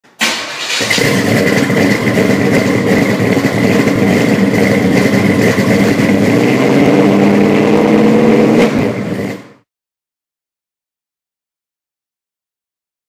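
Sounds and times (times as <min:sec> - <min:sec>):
vehicle engine revving: 0:00.6 - 0:09.6.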